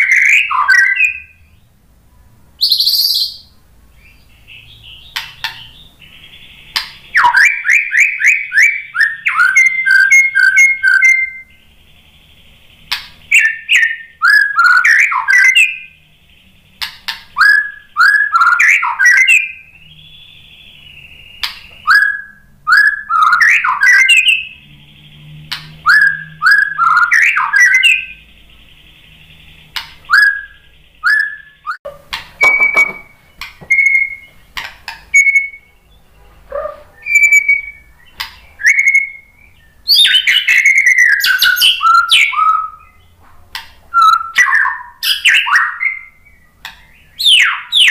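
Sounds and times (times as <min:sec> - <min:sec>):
bird singing whistled notes: 0:00.0 - 0:01.8, 0:02.6 - 0:31.8, 0:32.4 - 0:43.2, 0:43.9 - 0:47.9.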